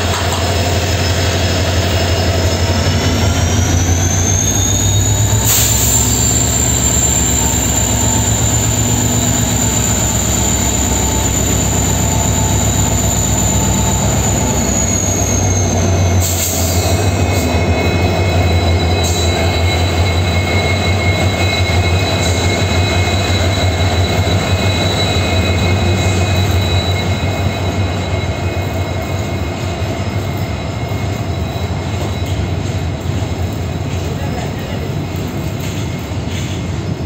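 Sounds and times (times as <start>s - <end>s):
high whine: 0.0s - 33.7s
diesel locomotive engine drone: 0.0s - 37.0s
wheels clicking on rails: 28.1s - 37.0s.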